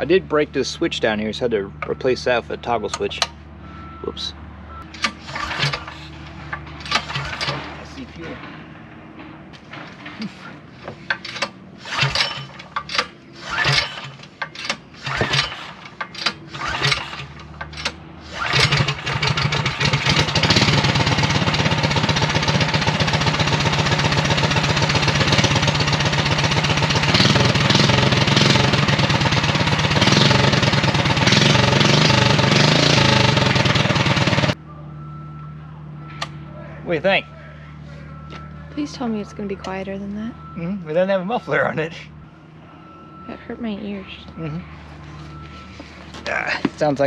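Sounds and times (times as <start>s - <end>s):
engine pull-start sputtering: 4.9s - 7.8s, 11.1s - 34.6s
unmuffled engine running loudly: 16.6s - 34.6s.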